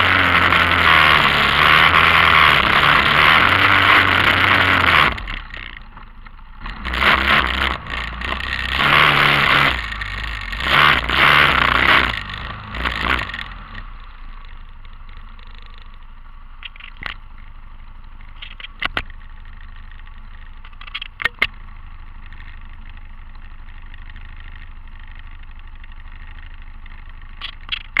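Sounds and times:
quad bike engine revving: 0:00.0 - 0:15.9, 0:22.3 - 0:28.0.

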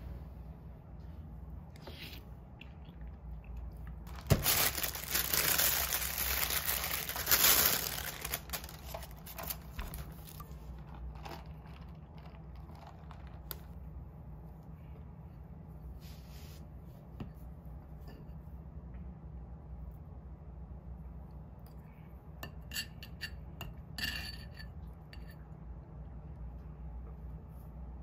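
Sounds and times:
plastic bag crinkling: 0:04.0 - 0:13.6
handling sounds: 0:04.1 - 0:13.6.

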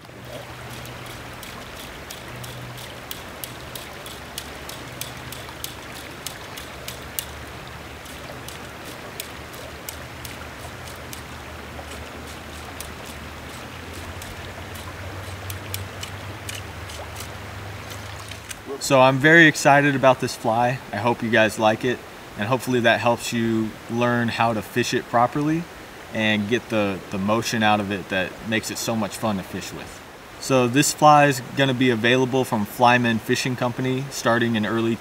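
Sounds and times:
fly line stripping ticks: 0:00.0 - 0:18.6
river water rushing: 0:00.0 - 0:26.3, 0:26.9 - 0:35.0.

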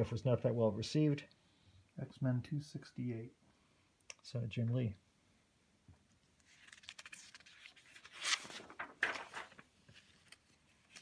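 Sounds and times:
paper rustling: 0:06.4 - 0:11.0.

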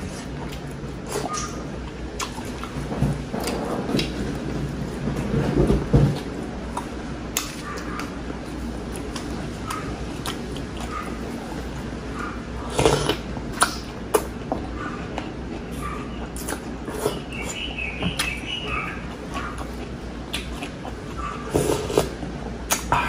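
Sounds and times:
chewing with wet mouth noises: 0:00.0 - 0:04.5, 0:06.1 - 0:23.0
lip smacks: 0:12.8 - 0:14.4, 0:19.1 - 0:21.0, 0:21.6 - 0:23.0
loud slurping: 0:21.5 - 0:22.9.

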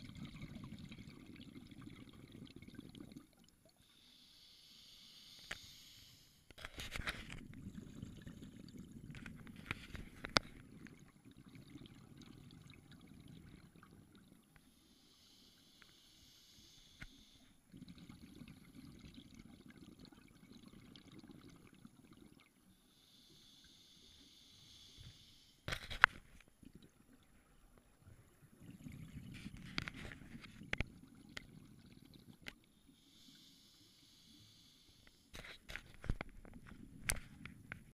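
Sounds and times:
scuba regulator inhale hiss: 0:03.8 - 0:06.5, 0:14.7 - 0:17.6, 0:22.8 - 0:25.7, 0:32.9 - 0:35.4.

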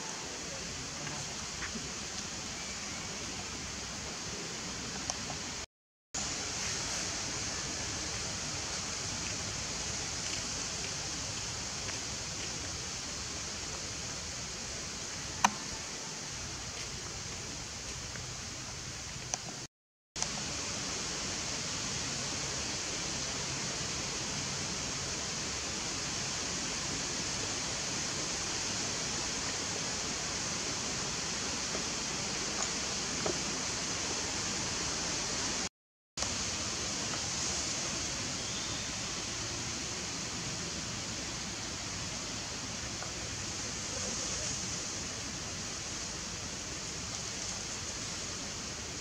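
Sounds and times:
forest background hiss: 0:00.0 - 0:49.0.

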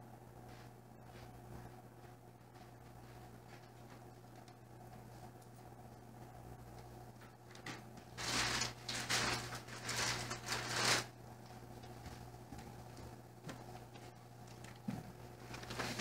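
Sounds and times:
low steady hum: 0:00.0 - 0:16.0
rustling handling noises: 0:06.8 - 0:16.0.

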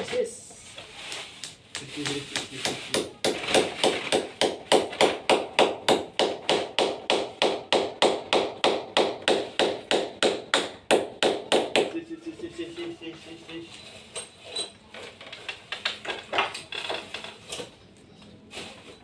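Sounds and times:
hand hammer striking: 0:01.4 - 0:12.0.

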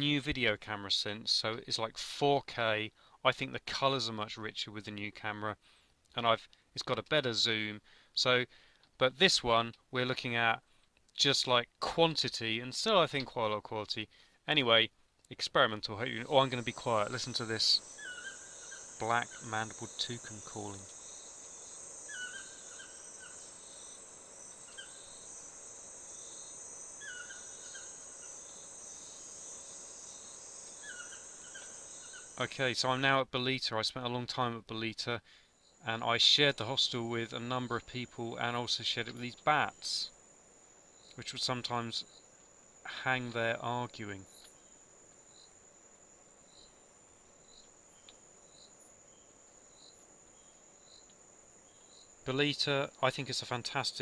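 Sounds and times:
insects hissing: 0:16.0 - 0:32.7, 0:35.3 - 0:43.6, 0:44.2 - 0:52.9
toucan yelping calls: 0:16.2 - 0:32.4.

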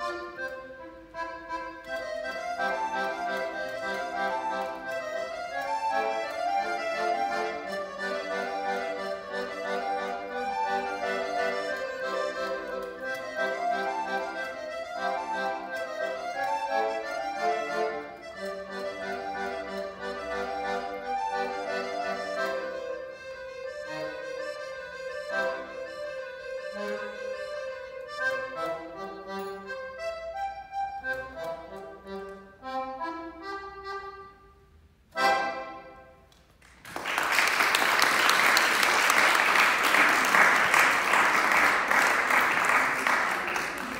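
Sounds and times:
accordion playing: 0:00.0 - 0:36.4, 0:37.1 - 0:43.9
audience applause: 0:36.6 - 0:43.9.

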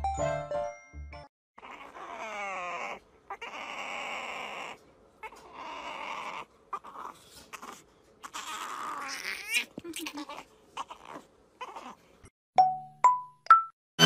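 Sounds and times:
puppy whining: 0:01.6 - 0:12.1.

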